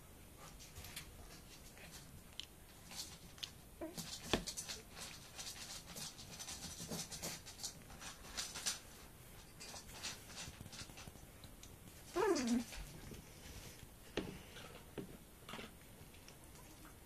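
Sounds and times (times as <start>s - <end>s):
puppies scrabbling in bedding: 0.4s - 13.8s
puppy grunts: 12.1s - 12.8s.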